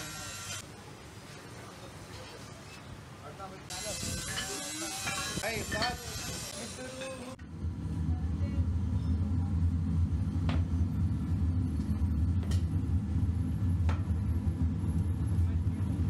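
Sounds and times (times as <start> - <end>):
low rumble: 7.4 - 16.0.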